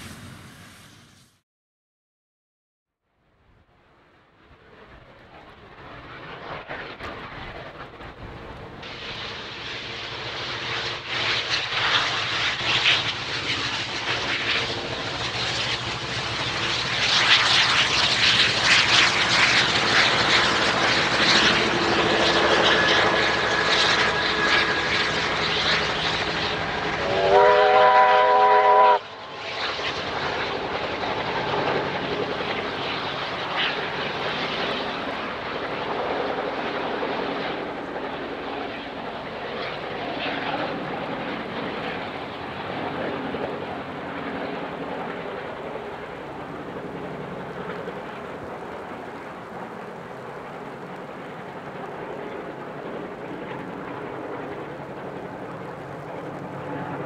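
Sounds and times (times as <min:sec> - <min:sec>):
steam locomotive rumbling past: 0:00.0 - 0:01.3, 0:04.5 - 0:35.4
steam whistle chord: 0:27.0 - 0:29.0.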